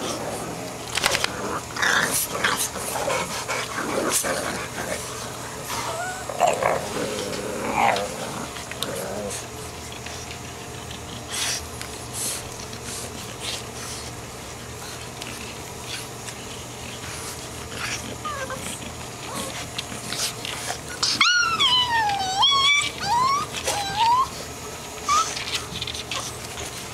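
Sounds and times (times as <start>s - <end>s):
puppy whining: 4.3s - 11.7s, 17.7s - 26.9s
puppy whimpering: 5.7s - 7.9s, 18.0s - 19.8s, 20.9s - 26.4s.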